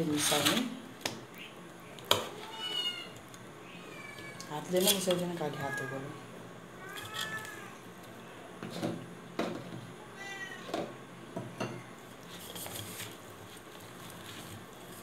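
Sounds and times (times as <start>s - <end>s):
cat meowing: 2.3s - 4.5s, 6.8s - 7.8s, 10.1s - 10.7s
rustling of food mixing: 12.0s - 15.0s.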